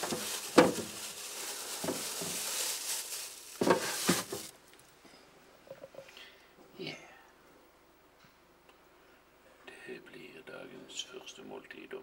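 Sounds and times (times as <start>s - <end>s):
meat sizzling in a pan: 0.0s - 4.5s.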